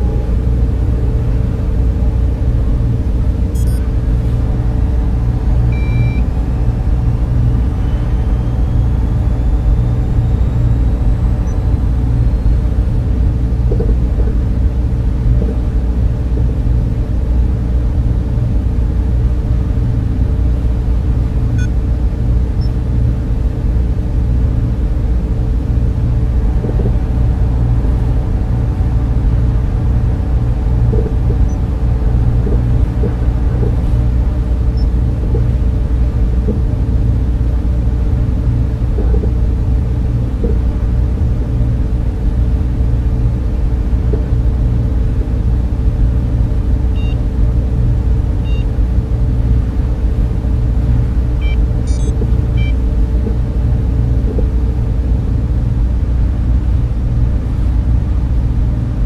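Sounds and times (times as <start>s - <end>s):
deep rumbling drone: 0.0s - 59.0s
faint short electronic beeps: 3.5s - 3.9s, 5.7s - 6.3s, 51.4s - 52.8s
faint high gliding tone: 3.5s - 13.2s.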